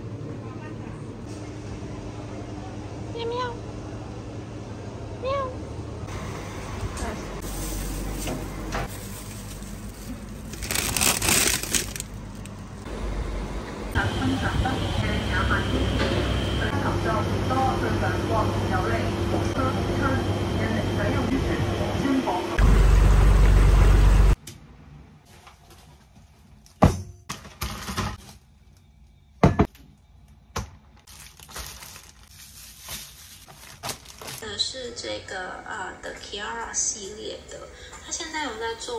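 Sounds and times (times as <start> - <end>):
plastic packaging crinkling: 8.9 - 12.8, 30.9 - 34.4.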